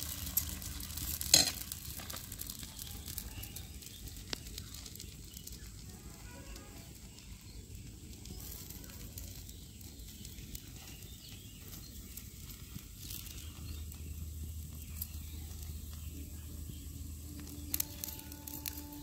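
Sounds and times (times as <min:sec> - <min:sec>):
batter sizzling on iron griddle: 0:00.0 - 0:19.0
faint crackles: 0:00.0 - 0:19.0
low hum: 0:12.0 - 0:19.0.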